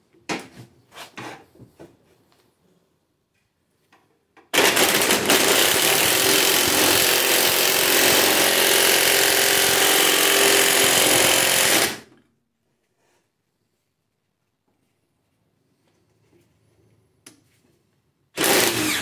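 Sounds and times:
impact driver hammering: 4.5s - 12.0s.

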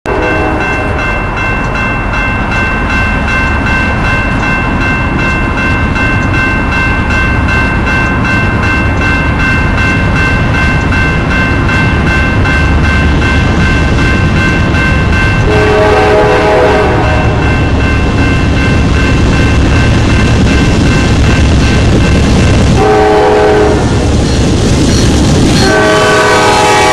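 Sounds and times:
locomotive air horn: 0.1s - 1.0s, 15.4s - 17.4s, 22.8s - 24.0s, 25.6s - 26.9s
crossing warning bell ringing: 0.1s - 26.9s.

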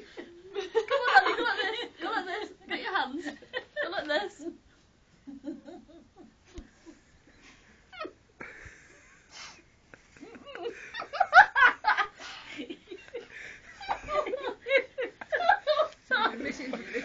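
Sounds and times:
people laughing: 0.0s - 4.4s, 10.1s - 17.0s.

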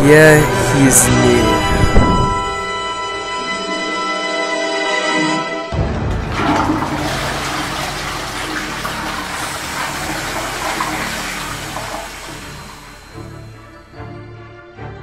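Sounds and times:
music: 0.0s - 15.0s
toilet flushing: 6.0s - 13.8s.

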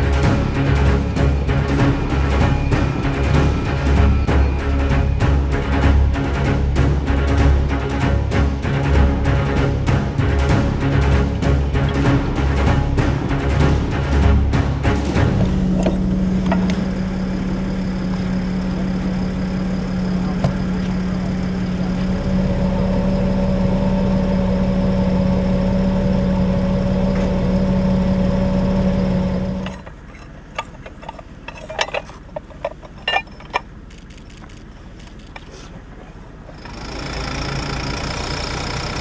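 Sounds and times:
diesel truck engine humming: 0.0s - 39.0s
winch cable clicks and clinks: 29.6s - 35.5s.

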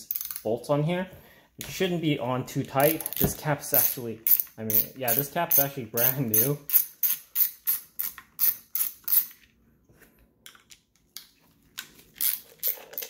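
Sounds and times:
socket ratchet clicking: 0.1s - 0.4s, 2.8s - 9.4s, 12.2s - 13.0s.

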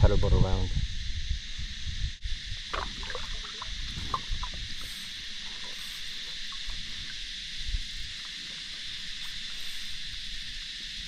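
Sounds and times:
steady high hiss: 0.0s - 11.0s
light taps and drips: 2.7s - 7.2s.

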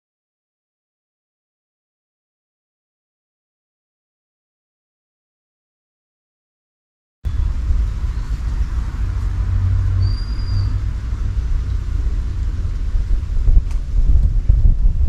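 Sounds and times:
wind buffeting microphone: 7.3s - 15.0s
high whistled note: 10.0s - 10.8s.

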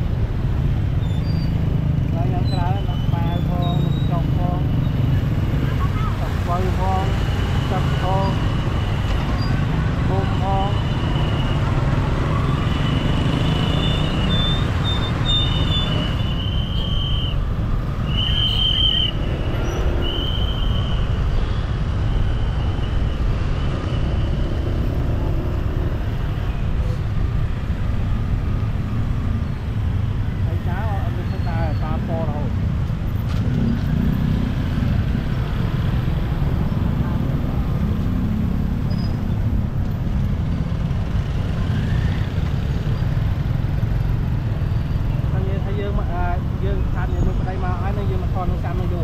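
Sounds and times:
dense street traffic rumble: 0.0s - 49.0s
high whistle-like tone: 13.7s - 17.4s, 18.0s - 21.6s.

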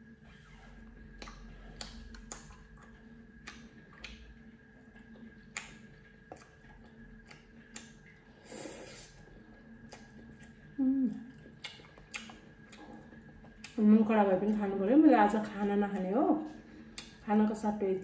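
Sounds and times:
mouth clicks and lip smacks: 1.1s - 4.3s, 5.5s - 9.0s, 11.2s - 13.0s, 16.9s - 17.2s
slurping noodles: 8.4s - 9.2s.

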